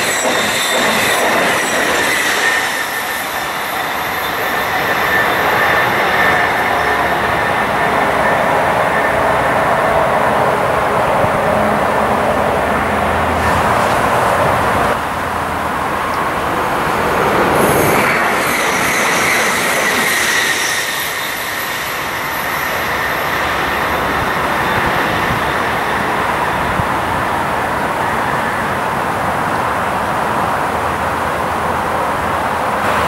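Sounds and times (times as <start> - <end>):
high wheel squeal: 0.0 - 9.8, 17.6 - 26.7
electric train passing: 0.0 - 33.0.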